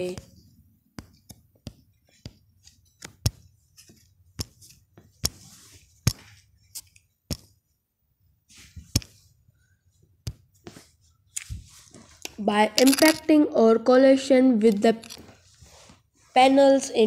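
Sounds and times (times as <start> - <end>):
sharp clicks and taps: 0.0 - 5.4
soft rustling: 0.0 - 7.2, 8.4 - 12.5, 14.7 - 16.8.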